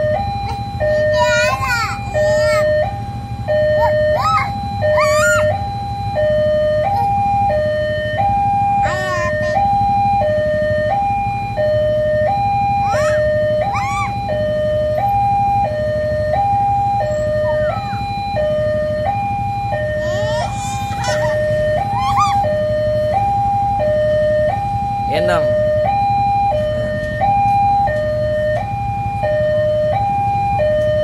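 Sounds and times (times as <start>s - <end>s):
level crossing two-tone alarm: 0.0s - 31.0s.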